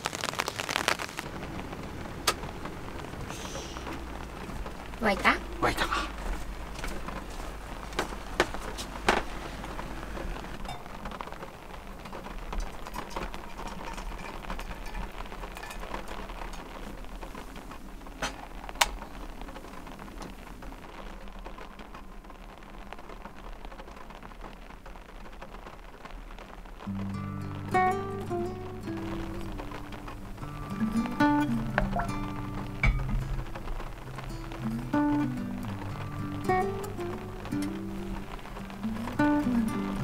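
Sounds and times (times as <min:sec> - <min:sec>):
rain on a van roof: 0:00.0 - 0:40.0
guitar music: 0:26.9 - 0:40.0.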